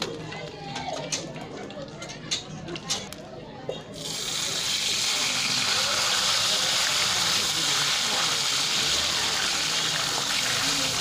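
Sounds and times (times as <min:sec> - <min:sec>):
fish sizzling in hot oil: 0:04.0 - 0:11.0.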